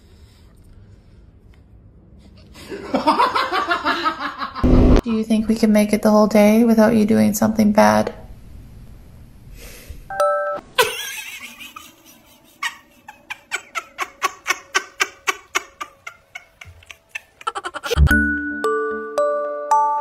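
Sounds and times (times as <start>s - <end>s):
doorbell-like chime: 18.0s - 20.0s.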